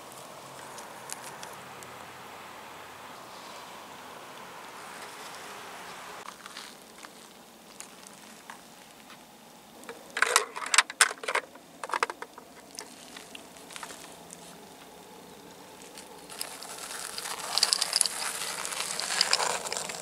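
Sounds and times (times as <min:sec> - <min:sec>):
plastic toys clicking and clattering: 0:09.8 - 0:14.0, 0:15.9 - 0:20.0.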